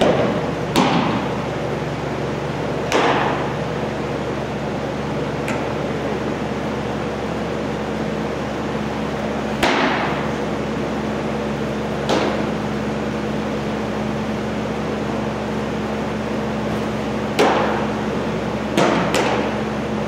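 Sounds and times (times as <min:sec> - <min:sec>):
echoing baseball smacks: 0:00.0 - 0:01.4, 0:02.8 - 0:03.6, 0:09.6 - 0:10.3, 0:12.0 - 0:12.6, 0:17.3 - 0:18.0, 0:18.7 - 0:19.6
ventilation hum: 0:00.0 - 0:20.0.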